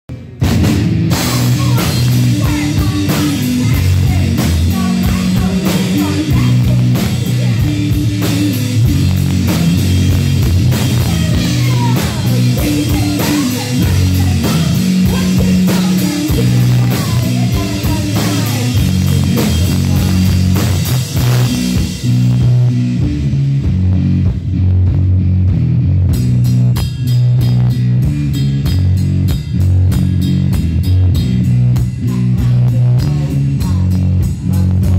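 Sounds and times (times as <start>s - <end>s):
drum kit: 0.1s - 34.9s
electric guitar: 0.1s - 34.9s.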